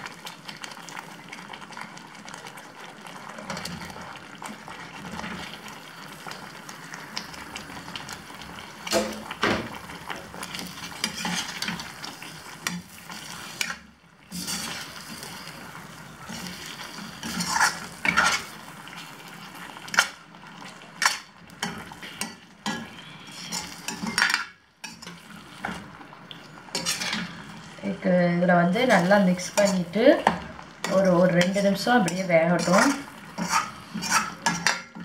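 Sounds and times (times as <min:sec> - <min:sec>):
food sizzling in a pan: 0:00.0 - 0:35.0
spoon scraping a pan: 0:10.6 - 0:15.5, 0:16.2 - 0:18.6, 0:21.0 - 0:27.8, 0:28.7 - 0:35.0.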